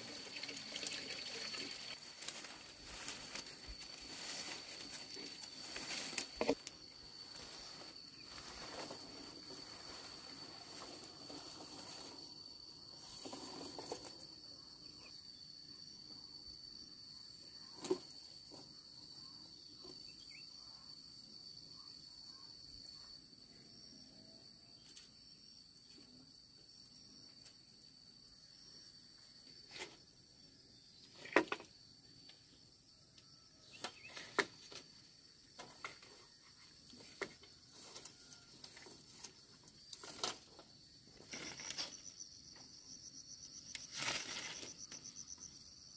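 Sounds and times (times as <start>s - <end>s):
insects droning: 0.0s - 45.9s.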